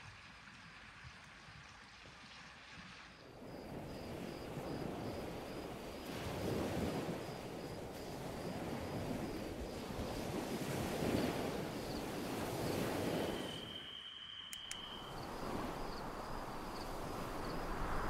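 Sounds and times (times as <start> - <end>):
wind: 0.0 - 18.0
waves washing on rocky shore: 3.8 - 13.7
faint high chirp: 13.1 - 16.3.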